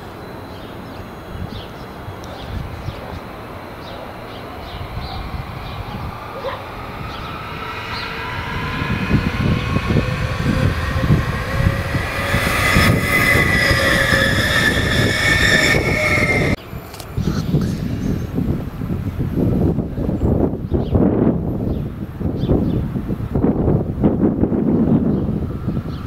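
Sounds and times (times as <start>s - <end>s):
train wheels rumbling on rails: 1.0s - 22.2s
train motor whine: 1.2s - 17.4s.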